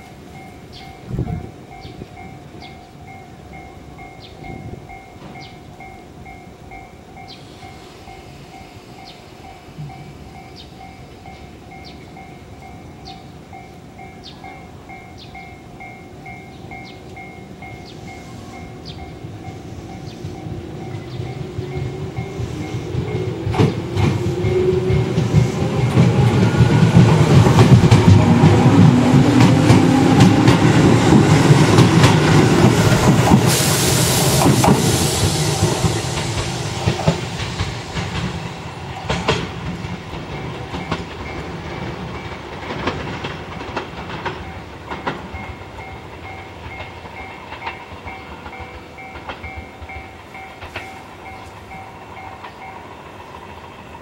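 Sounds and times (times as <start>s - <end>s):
electric train motors rising in pitch: 18.6s - 41.6s
train wheels clacking over rail joints: 18.9s - 54.0s.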